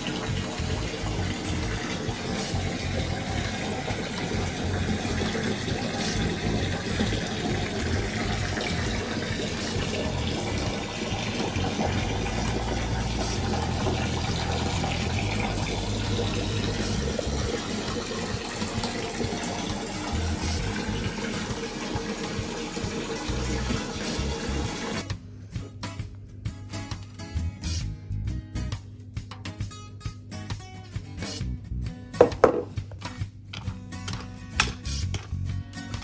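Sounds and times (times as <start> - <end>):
tap water pouring into bathtub: 0.0 - 25.1.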